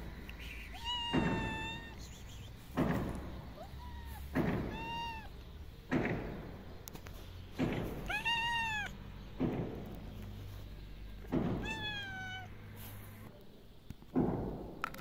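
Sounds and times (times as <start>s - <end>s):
dull thuds: 0.0s - 12.2s
cat meowing: 0.6s - 2.0s, 3.5s - 5.4s, 8.0s - 9.0s, 11.4s - 12.6s.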